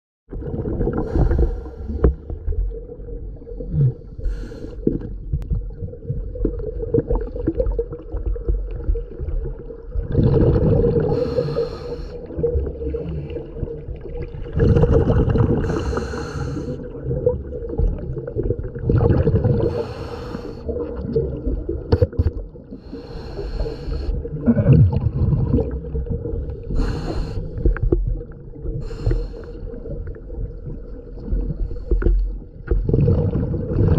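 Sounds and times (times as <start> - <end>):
exhaled bubbles gurgling: 0.3 - 33.9.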